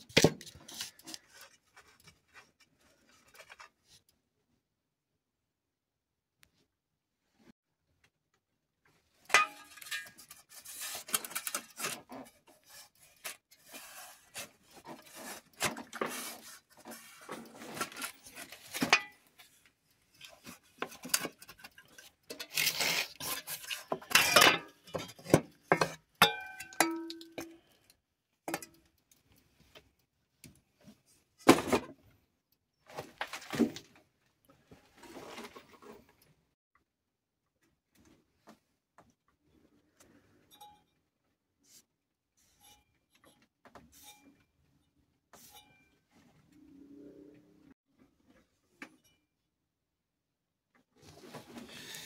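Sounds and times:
metal parts clinking and scraping: 9.3 - 10.5.

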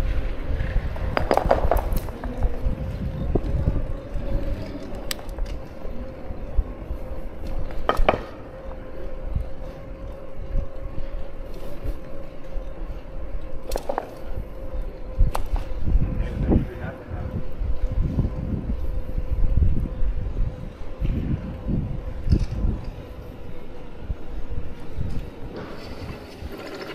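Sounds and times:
vehicle rolling over paving stones: 0.0 - 5.7, 25.5 - 26.9
steady hum: 0.0 - 26.9.

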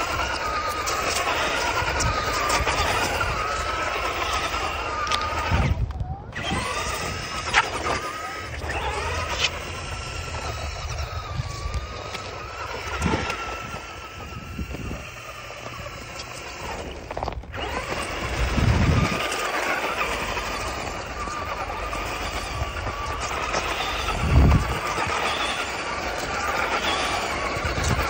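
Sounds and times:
electric motor whining: 0.0 - 28.0.

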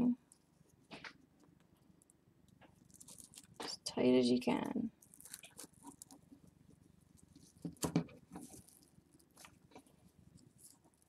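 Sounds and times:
pine needles and twine rustling: 2.8 - 3.7, 5.0 - 6.2, 8.3 - 9.6.

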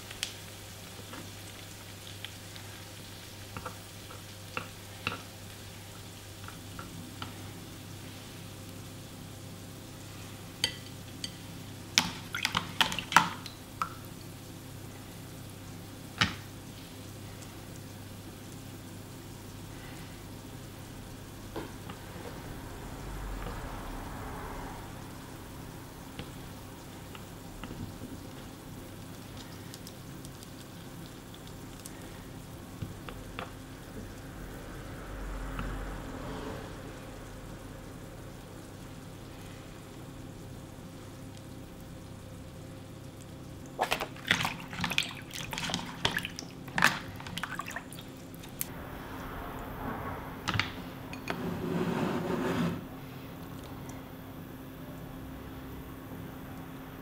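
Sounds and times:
sharp wet clicks and crackles: 27.0 - 34.4, 42.9 - 48.7.

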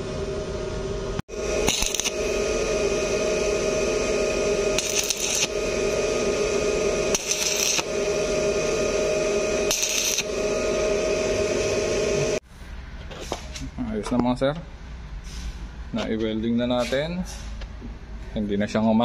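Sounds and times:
steady hum: 0.0 - 12.4
welding arc crackling and sizzling: 1.1 - 12.4.

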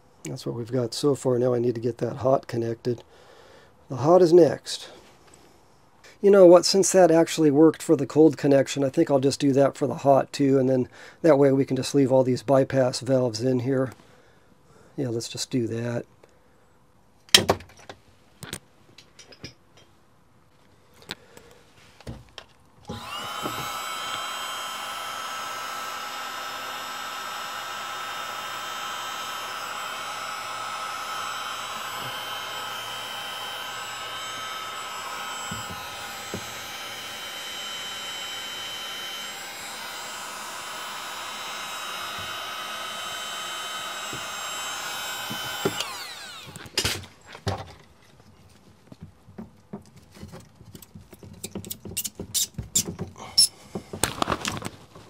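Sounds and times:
electric motor whining: 22.9 - 46.8.

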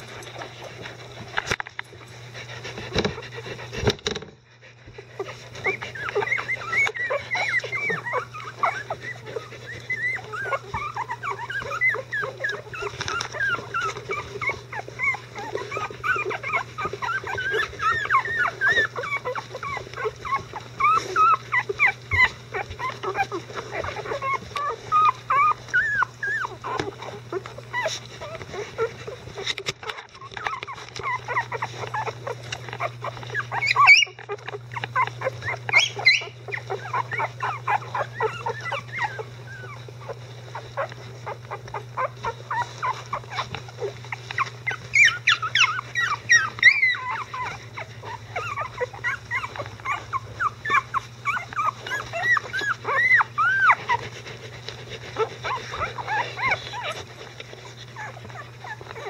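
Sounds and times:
puppies whimpering and squeaking: 0.0 - 59.0.

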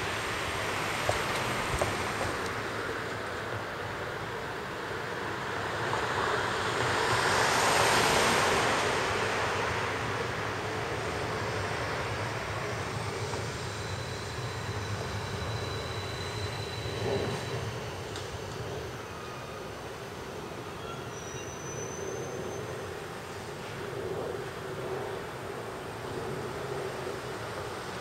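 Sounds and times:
electric train rumbling overhead: 0.0 - 28.0
faint high whine: 7.7 - 28.0.

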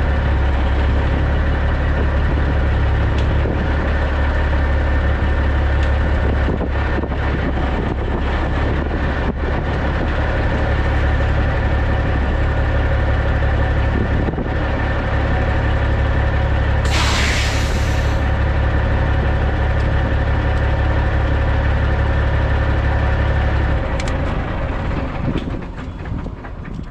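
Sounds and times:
diesel engine idling: 0.0 - 26.9
air hissing: 16.8 - 18.2.

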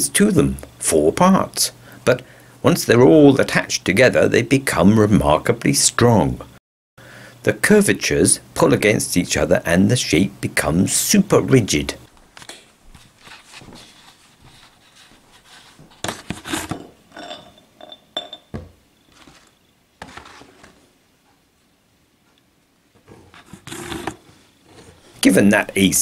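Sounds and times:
cardboard rustling and creaking: 19.1 - 20.9, 23.0 - 25.2.

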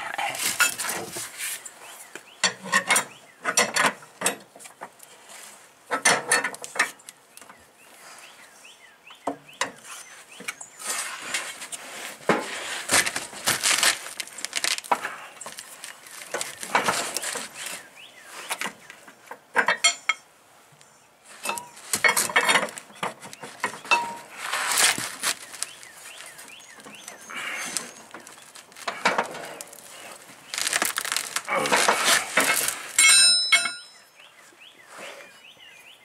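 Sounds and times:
rustling: 9.8 - 19.4, 21.2 - 34.0
wrench clinking on metal: 33.0 - 34.1.

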